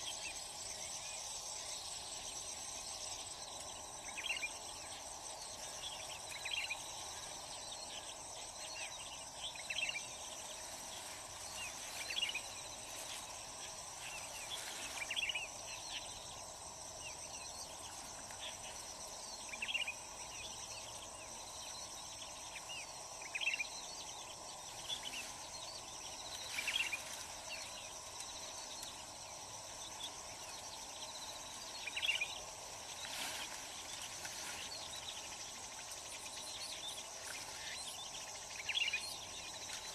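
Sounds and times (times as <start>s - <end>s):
insect chorus trilling: 0.0s - 39.9s.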